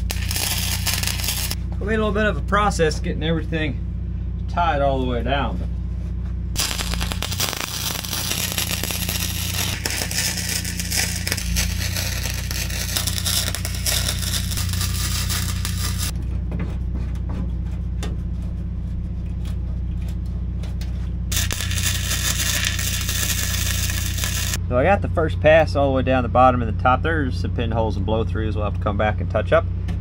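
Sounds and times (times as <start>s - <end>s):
welder arc crackling: 0.0s - 1.6s, 6.6s - 16.1s, 21.3s - 24.6s
steady low hum: 0.0s - 30.0s.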